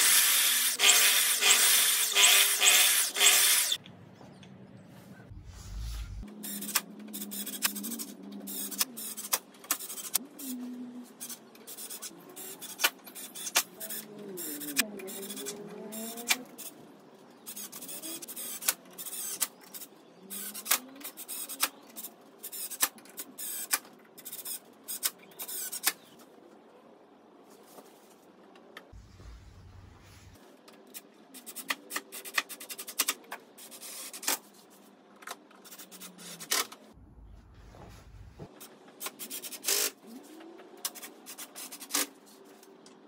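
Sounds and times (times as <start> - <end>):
cordless drill into wood: 0.0 - 3.8.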